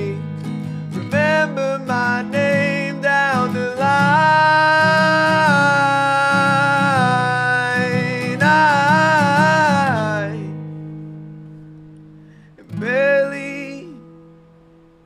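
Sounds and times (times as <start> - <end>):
person singing: 0.0 - 0.3, 1.0 - 10.6, 12.6 - 14.2
plucked guitar: 0.0 - 15.0.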